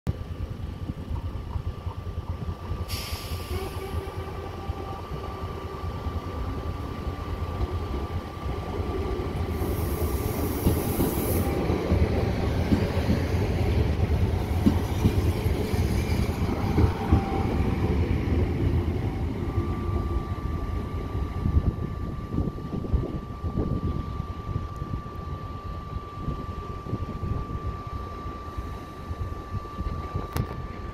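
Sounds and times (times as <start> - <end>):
train wheels rumbling: 0.1 - 30.9
thin high whine: 13.9 - 30.9.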